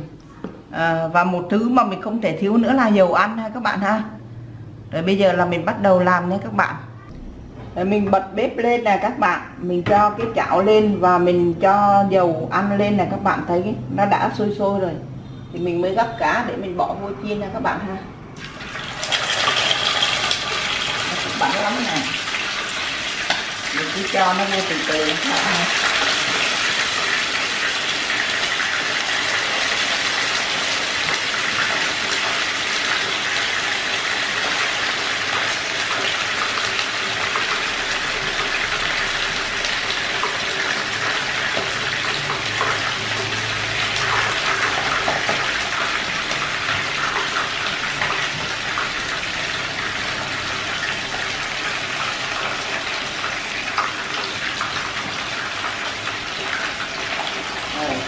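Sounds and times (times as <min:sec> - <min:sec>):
fish frying in oil: 0:18.4 - 0:58.0.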